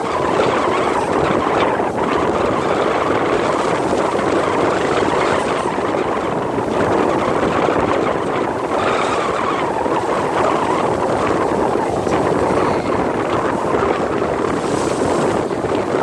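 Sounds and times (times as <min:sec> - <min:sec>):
foaming water along a ship: 0:00.0 - 0:16.0
wind rushing: 0:00.0 - 0:16.0.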